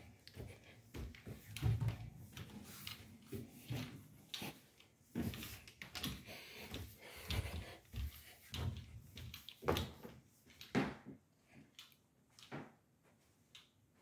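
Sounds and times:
footsteps on carpeted stairs: 0.0 - 11.2.

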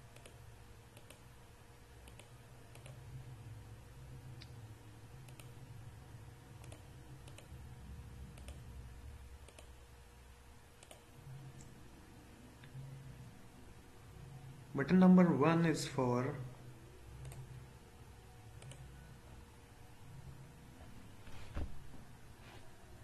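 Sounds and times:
faint low hum: 0.0 - 23.0
computer mouse clicking: 0.1 - 1.3, 2.0 - 3.0, 5.2 - 5.6, 6.6 - 7.6, 8.3 - 8.7, 9.4 - 9.8, 10.8 - 11.7, 17.2 - 17.6, 18.6 - 18.9.

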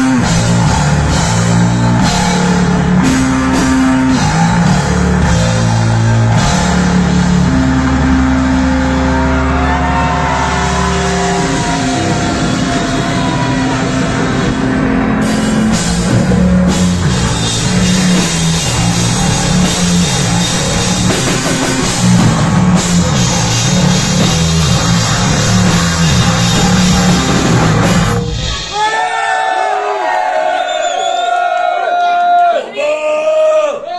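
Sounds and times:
electric bass guitar: 0.0 - 28.8
drum kit: 0.0 - 31.7.

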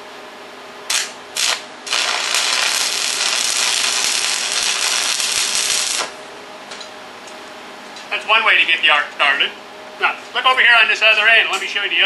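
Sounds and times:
welding arc hissing: 0.9 - 6.2.

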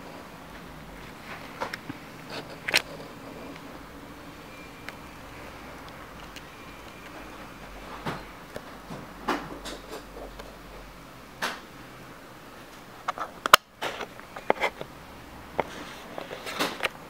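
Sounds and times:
handling rustles and clicks: 0.5 - 3.9, 5.8 - 10.6.

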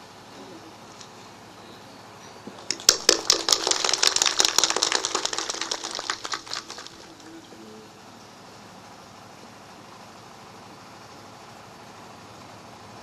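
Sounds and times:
audience applauding: 2.6 - 7.5.

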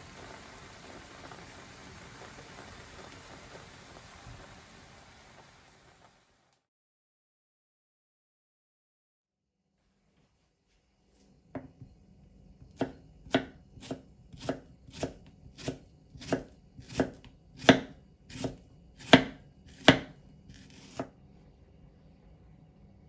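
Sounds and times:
knife slicing onion on board: 12.7 - 21.2.

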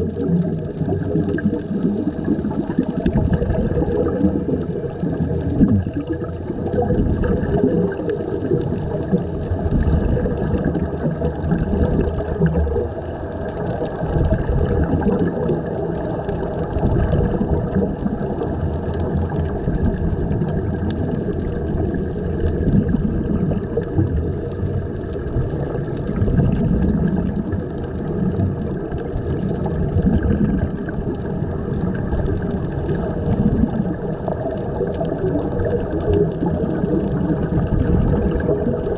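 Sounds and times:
underwater air bubbling: 0.0 - 38.9.

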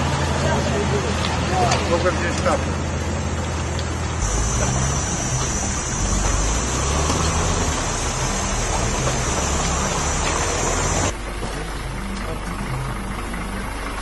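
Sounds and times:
tyres and wind rushing: 0.0 - 14.0
vehicle engine droning: 0.0 - 14.0
high-pitched hiss: 4.2 - 11.1.

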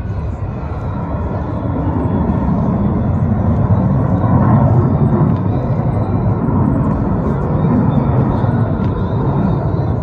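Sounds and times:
jets roaring past: 0.0 - 10.0.

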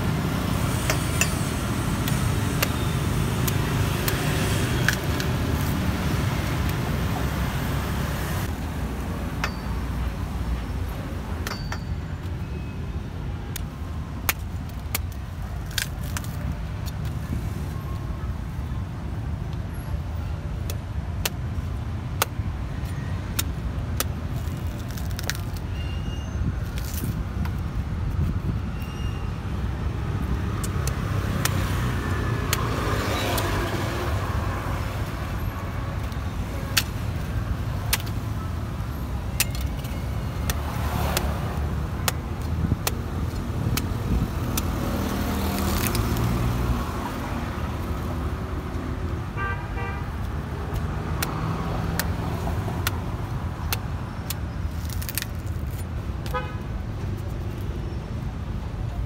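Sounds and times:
street traffic rumble: 0.0 - 59.0
knife chopping fruit husk: 40.4 - 41.4.

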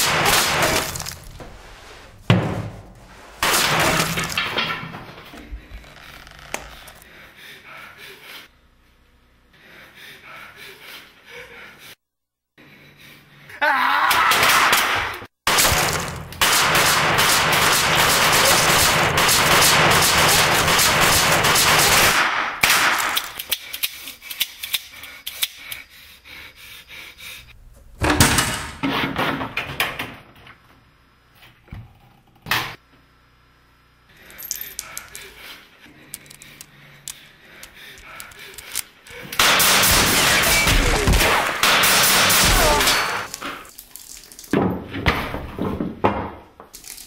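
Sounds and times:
gunfire: 14.5 - 23.2, 39.4 - 43.3.

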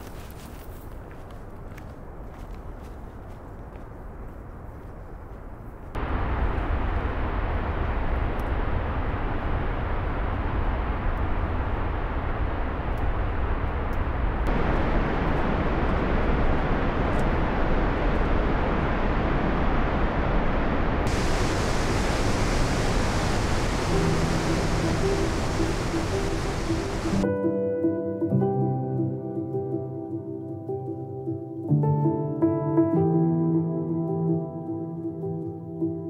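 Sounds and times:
river rapids rushing: 21.1 - 27.2.

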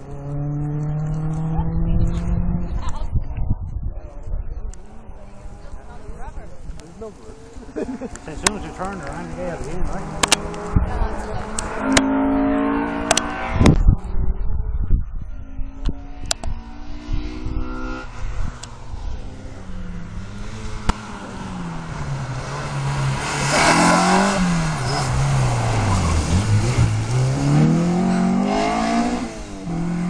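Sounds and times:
car engine revving: 0.0 - 3.1, 4.6 - 14.2, 15.6 - 30.0
tyre noise rushing: 19.6 - 30.0.

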